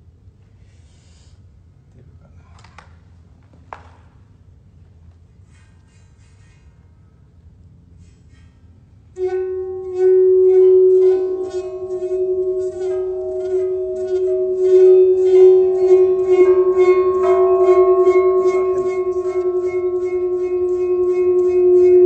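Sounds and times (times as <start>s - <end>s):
metal plate humming tone: 8.0s - 22.0s
rhythmic rubbing scrapes: 9.2s - 22.0s.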